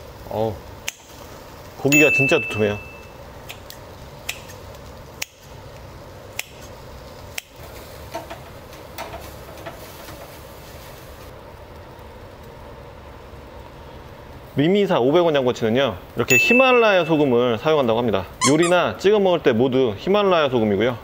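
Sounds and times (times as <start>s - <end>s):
low background noise: 10.6s - 21.0s.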